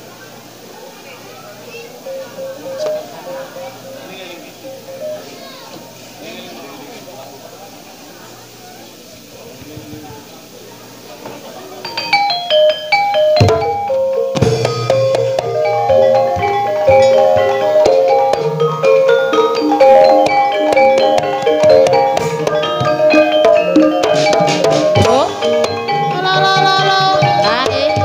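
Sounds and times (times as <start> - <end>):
drums: 11.0 - 28.0
mallet-struck tuned percussion: 11.8 - 28.0
sliding high melodic line: 11.8 - 28.0.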